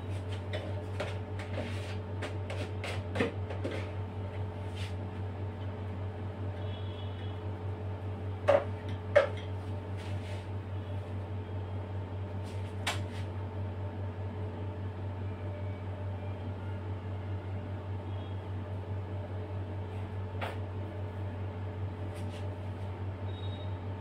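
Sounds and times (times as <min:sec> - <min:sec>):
steady low room hum: 0:00.0 - 0:24.0.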